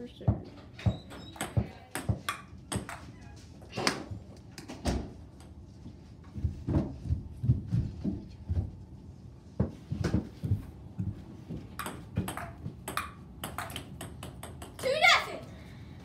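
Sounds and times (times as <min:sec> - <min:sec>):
ping pong ball bouncing: 0:00.8 - 0:03.1, 0:11.8 - 0:14.9.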